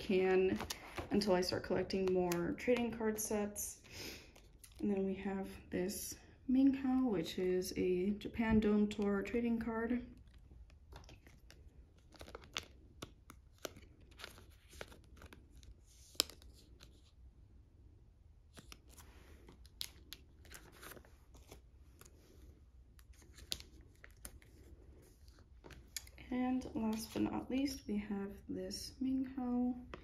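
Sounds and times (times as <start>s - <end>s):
plastic sleeve crinkling: 10.1s - 17.2s, 18.5s - 27.5s.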